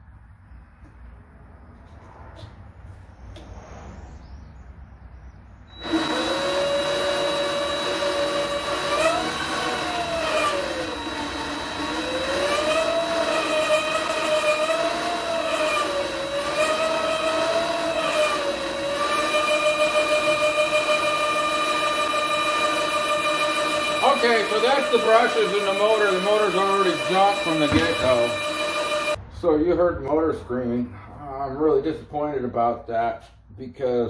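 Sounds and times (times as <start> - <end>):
steady electronic whistle: 5.6 - 8.4, 19.2 - 29.2
lathe motor whining: 5.7 - 29.2.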